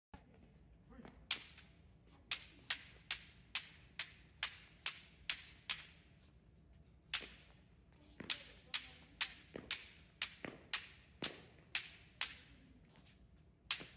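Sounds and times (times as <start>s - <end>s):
bamboo sword strikes cracking: 1.3s - 1.7s, 2.3s - 6.0s, 7.1s - 7.5s, 8.2s - 12.5s, 13.7s - 13.9s.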